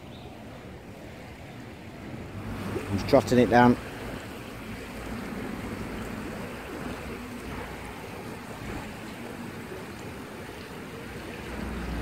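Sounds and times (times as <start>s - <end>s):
river flowing: 0.0s - 12.0s.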